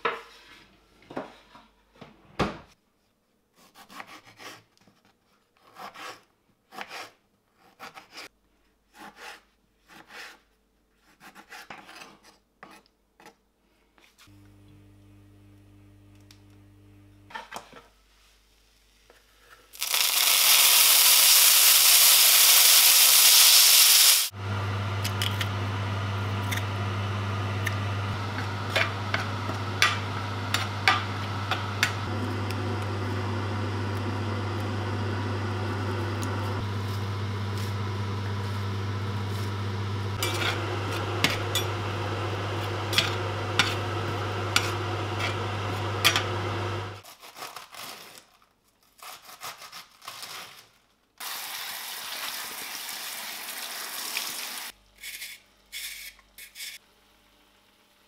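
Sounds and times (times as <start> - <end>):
tomatoes sizzling in hot oil: 19.8 - 47.0, 51.2 - 54.7
spatula scraping a pan: 40.2 - 41.8.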